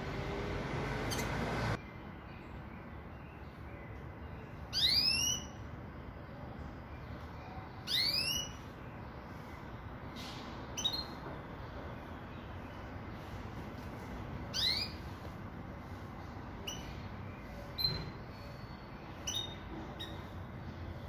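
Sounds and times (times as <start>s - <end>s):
low background noise: 0.0s - 21.0s.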